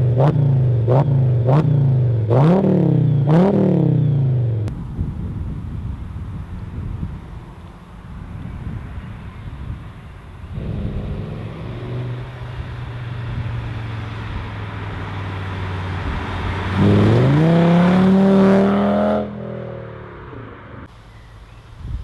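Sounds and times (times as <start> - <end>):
car engine accelerating past: 10.5 - 20.9.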